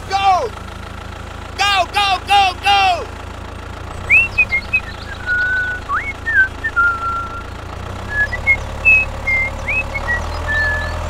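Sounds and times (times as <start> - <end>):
low engine hum: 0.0 - 11.0
high whistled notes: 4.1 - 7.5, 8.1 - 11.0.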